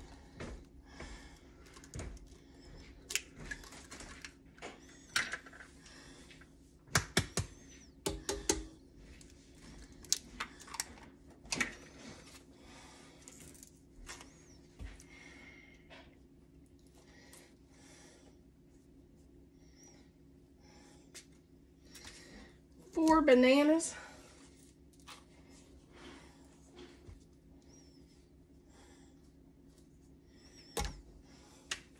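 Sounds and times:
eggs cracked against steel bowl: 6.9 - 8.8.

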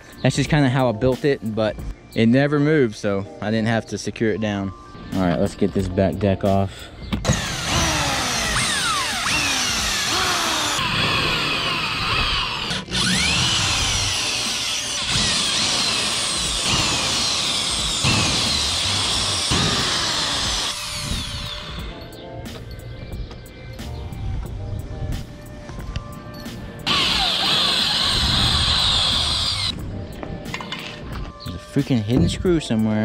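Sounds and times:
electric drill motor whine: 7.2 - 22.1, 26.8 - 29.8.

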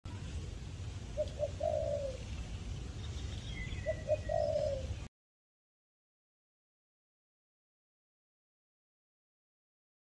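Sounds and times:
dove cooing: 1.2 - 2.3, 3.6 - 5.1.

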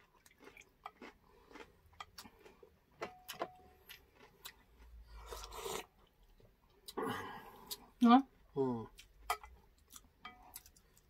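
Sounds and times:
metal spoon on dishes: 9.2 - 9.6, 10.2 - 10.8.

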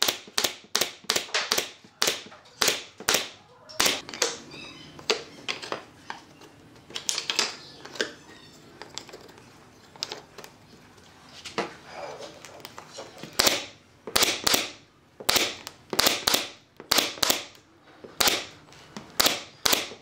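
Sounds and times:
nail gun firing: 0.0 - 4.0, 13.4 - 17.6, 18.2 - 18.6, 19.2 - 20.0.

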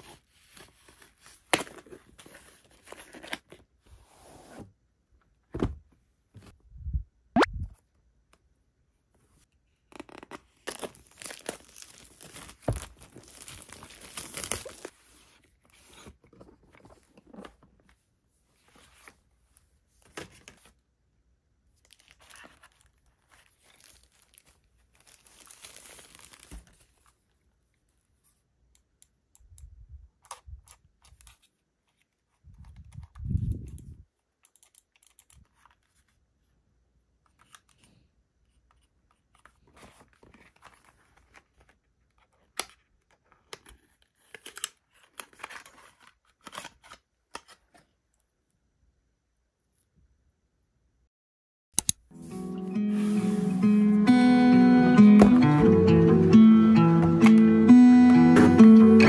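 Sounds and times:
packaging rustling and crinkling: 10.0 - 15.0, 21.8 - 27.2.

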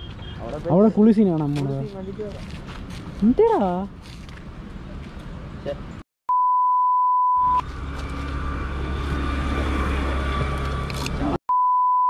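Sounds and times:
censor bleep tone: 6.3 - 7.6, 11.5 - 12.0.

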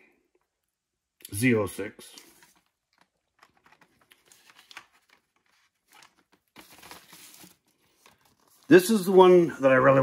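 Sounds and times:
paper and plastic crinkling: 2.2 - 9.4.

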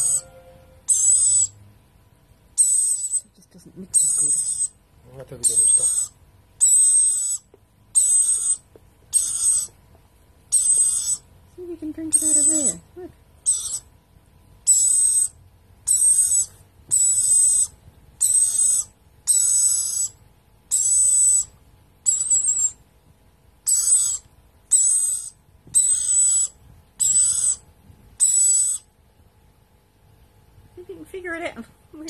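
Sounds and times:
parrot chick screeching: 0.0 - 1.6, 2.6 - 3.2, 3.9 - 4.8, 5.4 - 9.8, 10.5 - 11.2, 12.1 - 12.8, 13.4 - 13.9, 14.6 - 22.8, 23.6 - 27.6, 28.2 - 28.9.

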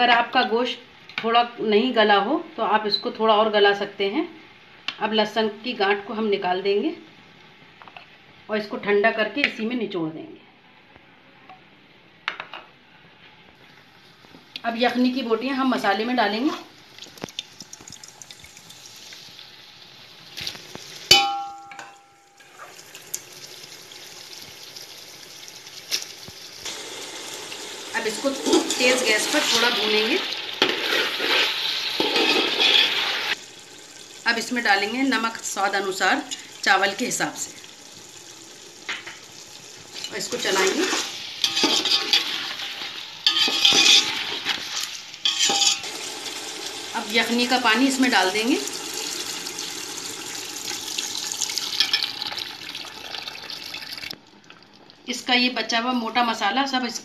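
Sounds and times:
masala sizzling in a pot: 12.8 - 54.1
spoon clanging on metal pot: 21.1 - 22.6, 41.4 - 42.2, 43.3 - 44.1, 45.3 - 45.9
spatula scraping metal pot: 30.6 - 33.4, 40.0 - 42.6, 43.2 - 45.9
spatula clinking: 40.0 - 42.4, 43.2 - 44.4, 45.2 - 45.9.

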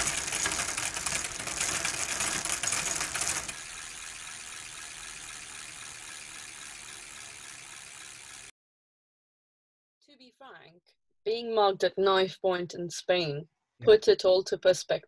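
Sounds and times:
rapid mechanical clicking and rattling: 0.0 - 8.5.

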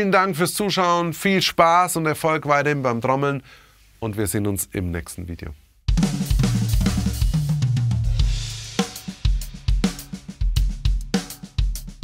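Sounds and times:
drum kit groove: 5.9 - 12.0.

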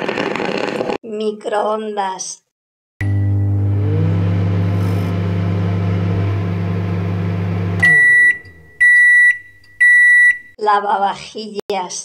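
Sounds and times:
microwave beeps: 3.0 - 5.4, 6.2 - 10.6
microwave oven humming: 3.0 - 9.4.

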